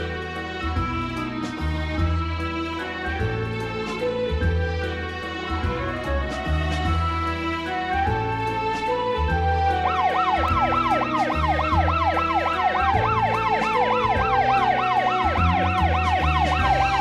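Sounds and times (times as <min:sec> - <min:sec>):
background music: 0:00.0 - 0:17.0
siren in fast yelp mode: 0:09.7 - 0:17.0.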